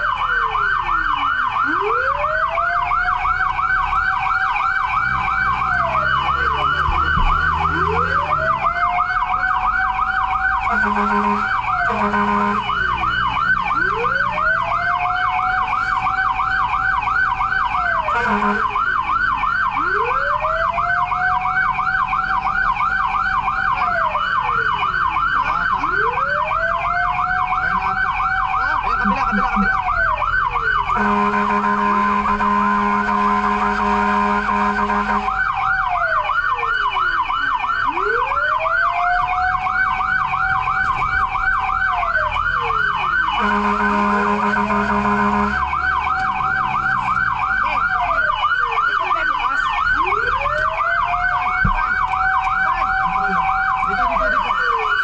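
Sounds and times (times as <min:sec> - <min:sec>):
electronic siren yelp: 0:00.0 - 0:55.0
siren wail: 0:00.0 - 0:55.0
truck horn blasts: 0:10.7 - 0:12.9, 0:18.1 - 0:18.8, 0:31.0 - 0:35.4, 0:43.4 - 0:45.7.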